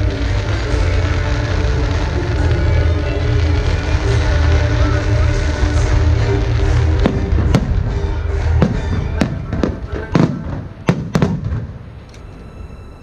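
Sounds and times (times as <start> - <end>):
show music with heavy bass: 0.0 - 10.6
fireworks exploding: 0.0 - 12.1.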